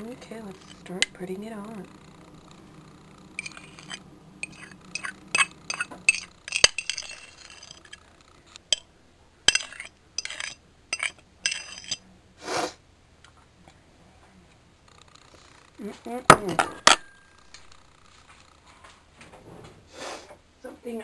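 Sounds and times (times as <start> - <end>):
metal spoon clinking on a dish: 3.4 - 8.0, 9.5 - 12.0.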